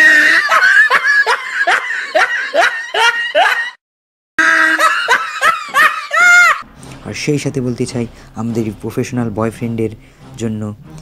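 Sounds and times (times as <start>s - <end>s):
high-pitched laughter: 0.0s - 3.8s, 4.4s - 6.6s.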